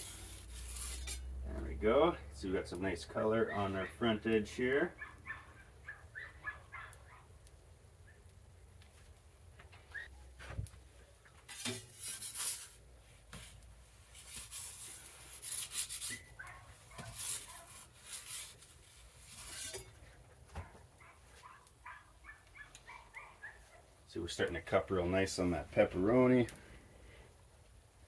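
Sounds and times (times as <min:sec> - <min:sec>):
metal peel scraping on stone: 0:00.0 - 0:01.4, 0:11.4 - 0:12.8, 0:14.1 - 0:20.1.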